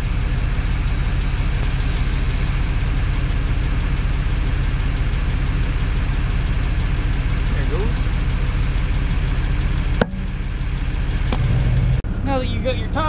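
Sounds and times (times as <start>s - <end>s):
air hissing from tire valve: 0.0s - 4.9s
engine idling: 0.0s - 13.0s.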